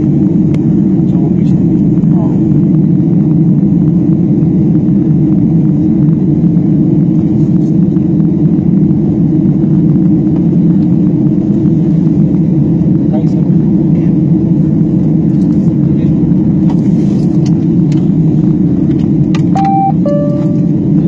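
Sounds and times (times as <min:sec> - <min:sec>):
propeller airplane engine rumble: 0:00.0 - 0:21.0.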